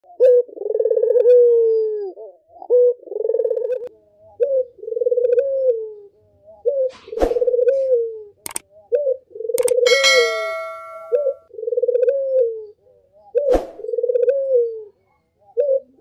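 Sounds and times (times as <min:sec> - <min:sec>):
dove cooing: 0:00.1 - 0:09.8, 0:11.5 - 0:12.8, 0:13.4 - 0:16.0
sharp click: 0:09.6 - 0:11.2.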